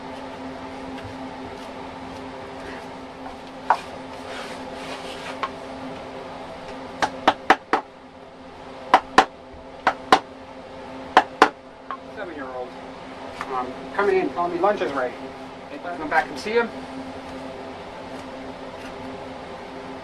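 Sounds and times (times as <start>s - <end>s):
machine hum: 0.0s - 20.0s
mallet knocking on carving tool: 7.0s - 7.9s, 8.9s - 10.3s, 11.2s - 11.6s.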